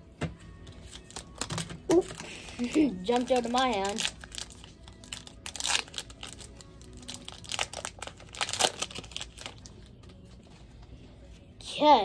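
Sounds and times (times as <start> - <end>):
foil wrapper crinkling and tearing: 0.8 - 9.9.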